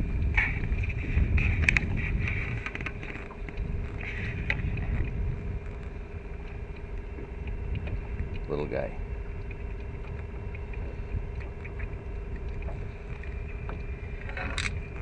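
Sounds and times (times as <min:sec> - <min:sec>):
steady boat hum: 0:00.0 - 0:15.0
wind rumbling on microphone: 0:00.0 - 0:15.0.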